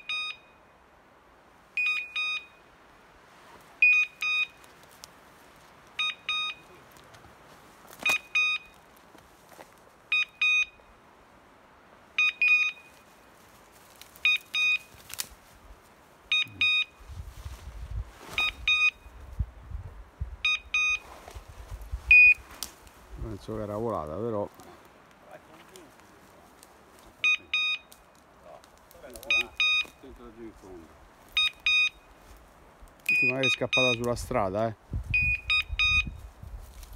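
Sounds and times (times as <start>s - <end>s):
dog collar double beeps: 0.0s - 0.6s, 1.8s - 2.6s, 3.8s - 4.6s, 6.0s - 6.7s, 8.0s - 8.7s, 10.1s - 10.9s, 12.2s - 12.9s, 14.2s - 14.9s, 16.3s - 17.0s, 20.4s - 21.0s, 27.2s - 27.9s, 29.3s - 30.0s, 31.4s - 32.1s, 33.1s - 34.0s, 35.1s - 36.2s
footsteps through brush: 3.2s - 10.1s, 12.5s - 33.4s, 34.0s - 36.9s.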